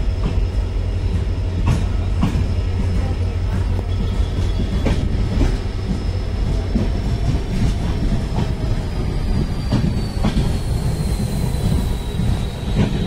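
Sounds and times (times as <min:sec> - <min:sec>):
train wheels rumbling on rail: 0:00.0 - 0:13.0
clacks over rail joints: 0:01.1 - 0:08.6
high wheel squeal: 0:08.8 - 0:13.0.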